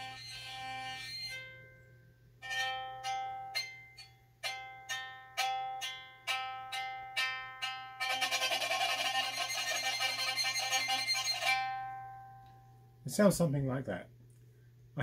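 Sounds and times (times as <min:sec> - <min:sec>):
single-string horn violin notes: 0:08.0 - 0:11.8.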